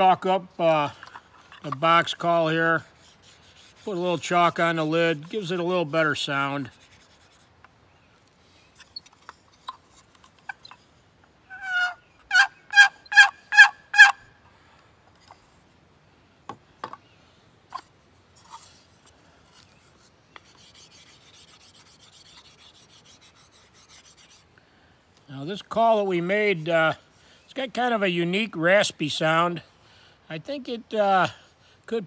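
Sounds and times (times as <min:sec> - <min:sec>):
faint rubbing: 0:00.9 - 0:07.6, 0:17.7 - 0:24.5
turkey call yelps: 0:11.5 - 0:14.2.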